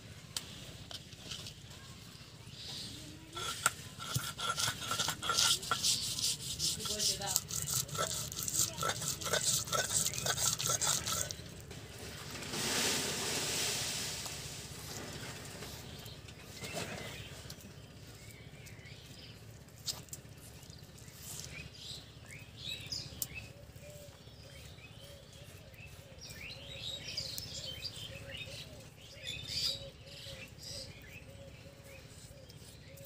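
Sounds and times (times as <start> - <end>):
small birds chirping: 0.1 - 11.7, 15.0 - 33.0
brief rushing scraping noise: 12.0 - 15.9.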